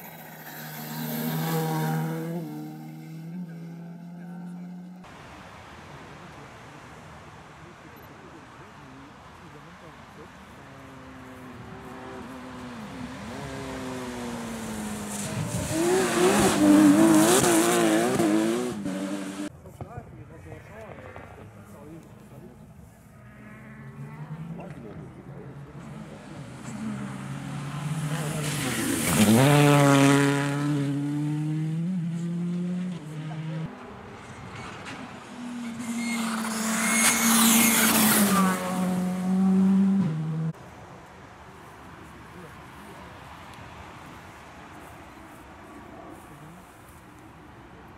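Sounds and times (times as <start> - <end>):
rally car engine revving: 0.0 - 4.9, 11.7 - 19.5, 23.3 - 33.7, 35.4 - 40.6
tyre and road noise: 0.0 - 47.9.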